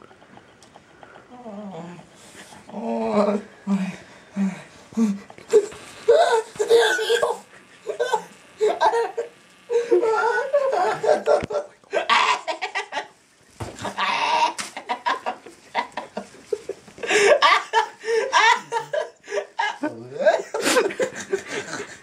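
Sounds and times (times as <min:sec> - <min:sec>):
people laughing and giggling: 0:07.8 - 0:13.2, 0:13.8 - 0:22.0.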